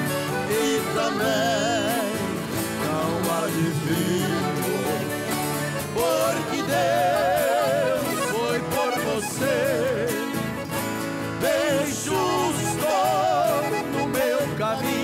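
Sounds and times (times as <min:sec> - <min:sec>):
accordion melody: 0:00.0 - 0:15.0
strummed guitars: 0:00.0 - 0:15.0.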